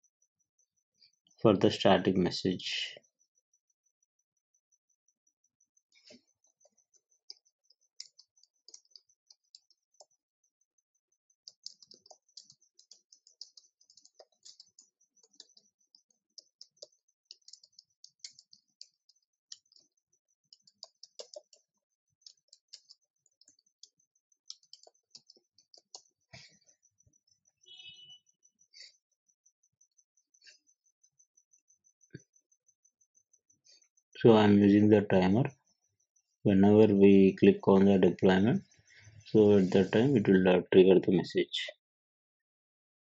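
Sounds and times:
computer keyboard typing: 6.1s - 26.5s.

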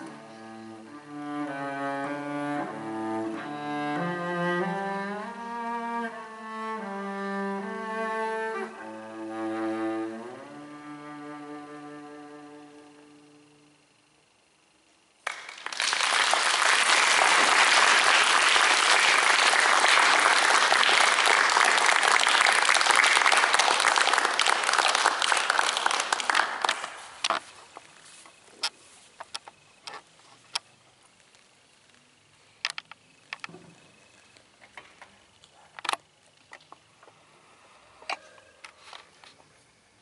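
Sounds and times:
audience applauding: 15.2s - 27.3s.

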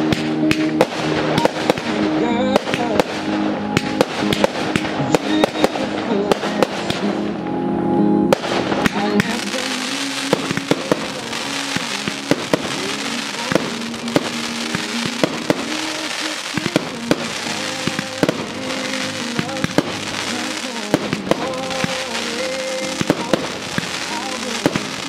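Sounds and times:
fireworks bangs: 0.0s - 7.3s, 8.3s - 25.0s
music playing: 0.0s - 25.0s
crackling hiss: 8.3s - 25.0s.

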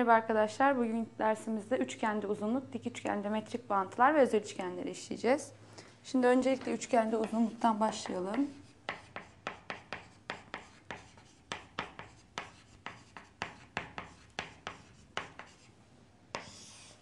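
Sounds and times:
chalk tapping and scratching: 6.5s - 17.0s
chalk scraping stroke: 8.4s - 15.7s, 16.3s - 17.0s.

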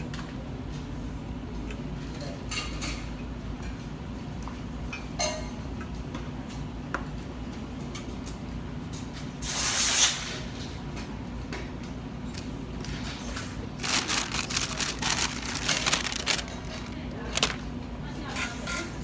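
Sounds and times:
steady low hum: 10.5s - 18.4s
rustling of small parts: 13.8s - 17.7s.

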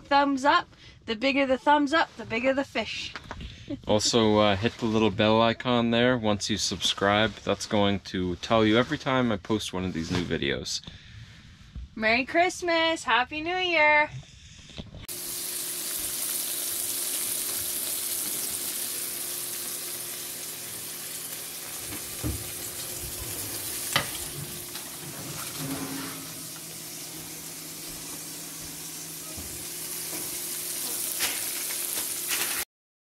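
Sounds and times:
fish sizzling in a pan: 15.1s - 32.6s.

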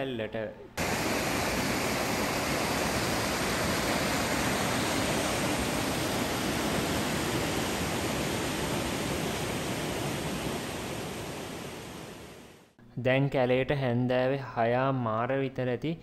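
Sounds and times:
water rushing over rocks: 0.8s - 12.3s.

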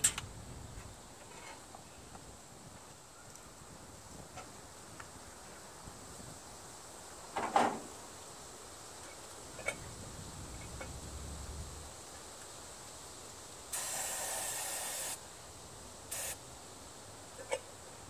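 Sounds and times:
aerosol can spraying hiss: 13.7s - 15.2s, 16.1s - 16.4s.

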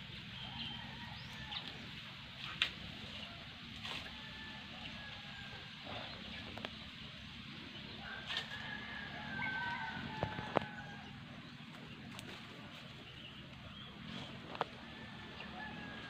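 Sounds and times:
low steady rumble: 0.0s - 16.0s
rooster crowing: 8.0s - 11.2s, 14.8s - 16.0s.

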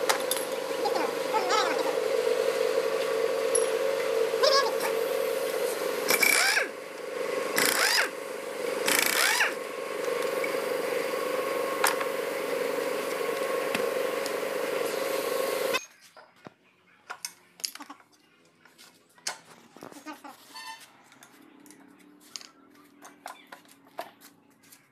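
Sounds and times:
pneumatic impact wrench rattling: 6.1s - 6.8s, 7.5s - 8.2s, 8.8s - 9.6s.

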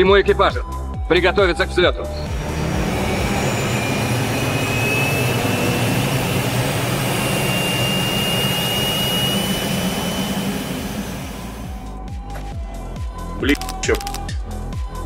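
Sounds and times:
jet engines roaring: 2.2s - 11.9s.

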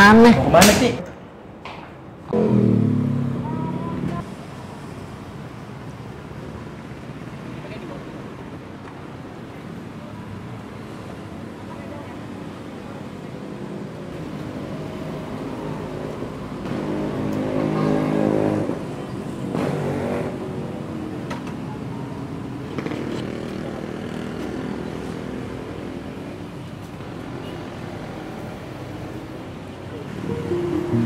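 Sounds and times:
motorcycle engine revving: 2.3s - 4.2s.

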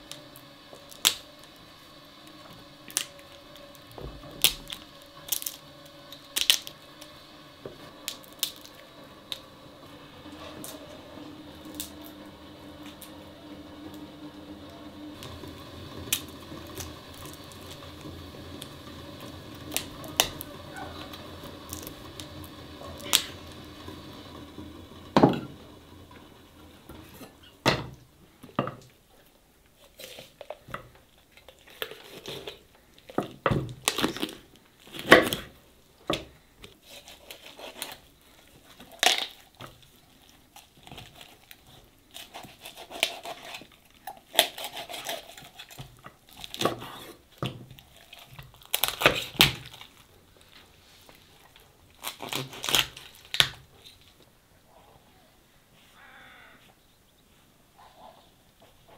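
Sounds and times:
chicken skin and joints tearing: 0.0s - 9.5s, 10.3s - 23.8s, 29.8s - 35.4s, 36.6s - 54.3s.

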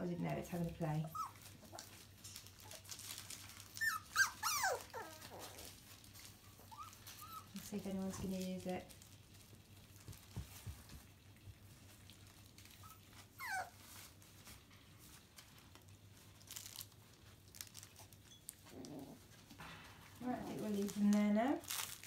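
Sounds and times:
faint rustling: 0.0s - 22.0s
puppy whimpering: 1.0s - 2.0s, 3.7s - 5.8s, 6.4s - 7.6s, 12.7s - 14.1s, 18.3s - 19.4s.

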